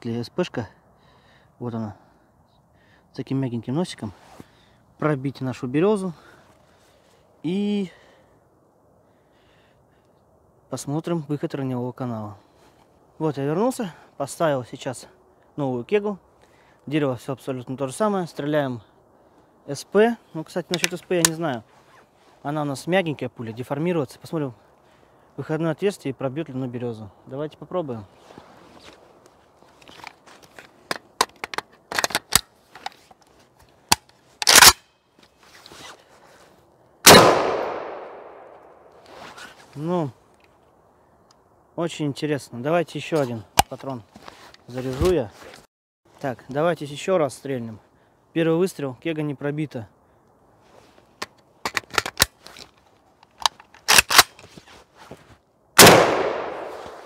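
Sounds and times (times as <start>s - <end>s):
rifle clicks and clacks: 20.7s - 21.4s, 30.9s - 32.5s, 33.9s - 34.8s, 53.2s - 54.4s
rifle shot with echo: 37.0s - 38.9s, 55.8s - 57.0s.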